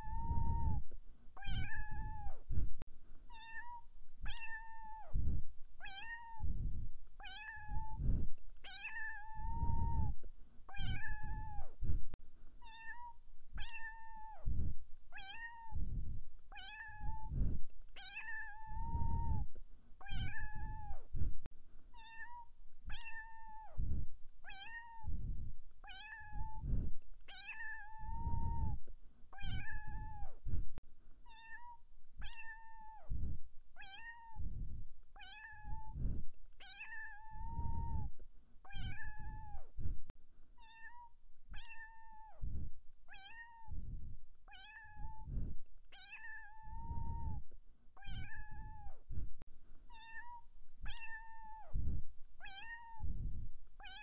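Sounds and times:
cat meowing: 0:00.0 - 0:00.8, 0:01.4 - 0:02.4, 0:03.3 - 0:05.1, 0:05.8 - 0:06.5, 0:07.2 - 0:08.0, 0:08.6 - 0:11.8, 0:12.6 - 0:14.4, 0:15.2 - 0:15.8, 0:16.5 - 0:17.3, 0:18.0 - 0:19.4, 0:20.0 - 0:21.1, 0:21.9 - 0:23.7, 0:24.5 - 0:25.1, 0:25.8 - 0:26.6, 0:27.3 - 0:28.8, 0:29.4 - 0:30.4, 0:31.2 - 0:33.0, 0:33.8 - 0:34.4, 0:35.2 - 0:36.0, 0:36.6 - 0:38.1, 0:38.7 - 0:39.7, 0:40.6 - 0:42.4, 0:43.1 - 0:43.8, 0:44.5 - 0:45.3, 0:45.9 - 0:47.4, 0:48.0 - 0:49.0, 0:49.9 - 0:51.7, 0:52.4 - 0:53.1.

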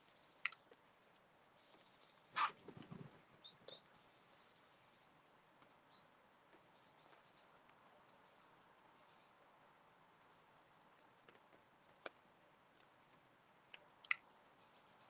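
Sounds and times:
songbirds chirping: 0:00.0 - 0:15.0
wings fluttering: 0:02.3 - 0:03.4.

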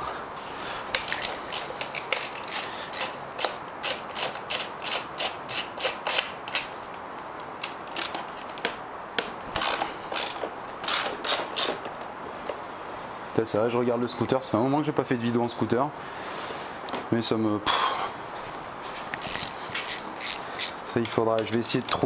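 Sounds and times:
ratchet wrench clicking: 0:01.0 - 0:06.3, 0:19.2 - 0:20.8.

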